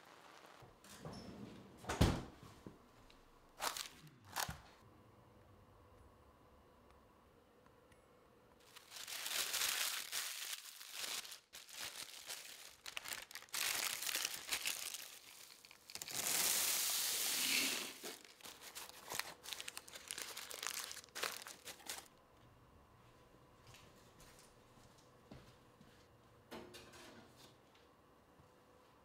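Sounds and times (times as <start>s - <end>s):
crinkling rustling handling noise: 3.6s - 4.8s, 8.6s - 22.1s.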